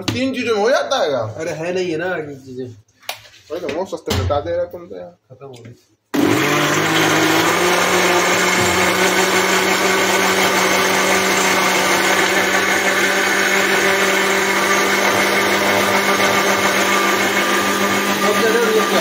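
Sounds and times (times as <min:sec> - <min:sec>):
electric blender running: 0:06.2 - 0:19.0.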